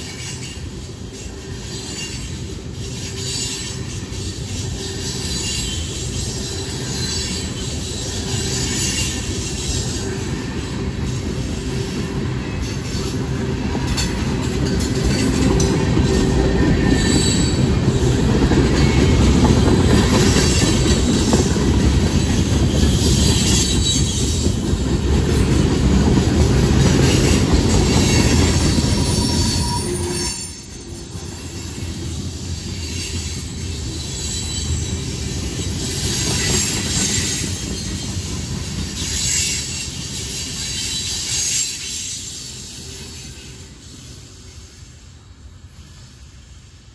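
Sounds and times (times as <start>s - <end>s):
high wheel squeal: 0.0s - 12.0s, 15.1s - 21.4s, 22.1s - 24.6s, 27.0s - 45.1s
train wheels rumbling on rails: 0.0s - 46.9s.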